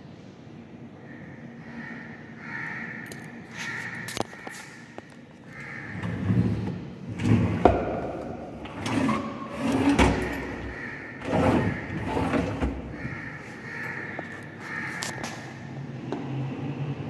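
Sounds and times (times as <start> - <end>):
wooden drawers sliding and scraping: 6.0 - 13.0.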